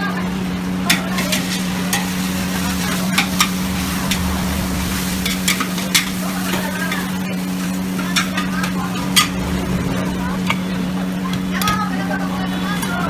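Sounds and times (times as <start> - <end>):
noodles sizzling in a wok: 0.0 - 12.8
steady hum: 0.0 - 13.0
metal ladle scraping a wok: 0.9 - 9.4.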